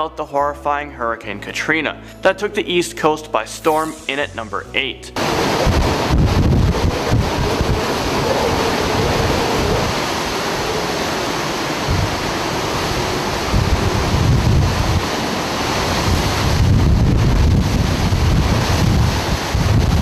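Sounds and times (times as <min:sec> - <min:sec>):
driving rain: 0:05.2 - 0:20.0
hurricane wind: 0:05.2 - 0:20.0
wind gusts buffeting microphone: 0:05.2 - 0:20.0.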